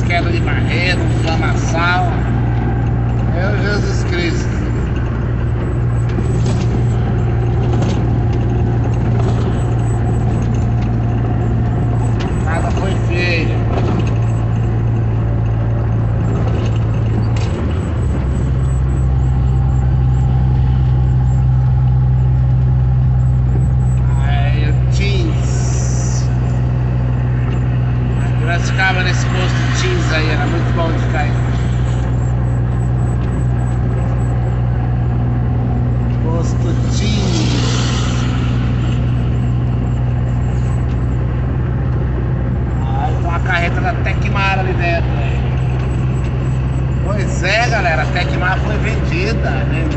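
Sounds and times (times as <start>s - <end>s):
road and wind noise: 0.0s - 49.9s
vehicle engine droning: 0.0s - 49.9s.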